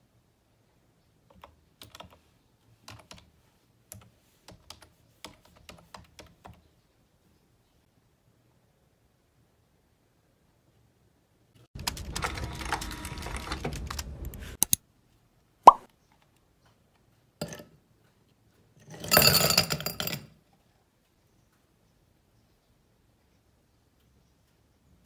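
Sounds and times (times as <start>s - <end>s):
handling noise: 11.8s - 14.6s
ice cubes clattering into glass: 18.9s - 20.2s.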